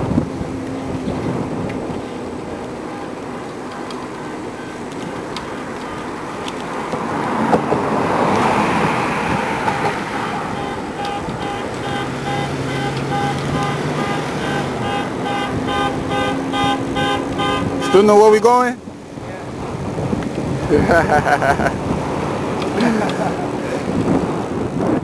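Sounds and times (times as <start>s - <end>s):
city street traffic: 0.0s - 25.0s
wind rushing past bicycle: 0.0s - 25.0s.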